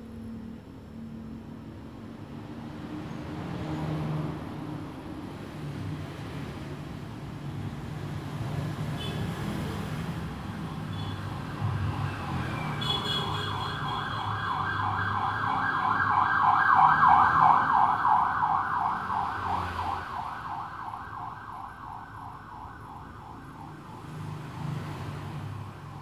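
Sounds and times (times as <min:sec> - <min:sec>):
siren yelping: 0:10.8 - 0:24.8.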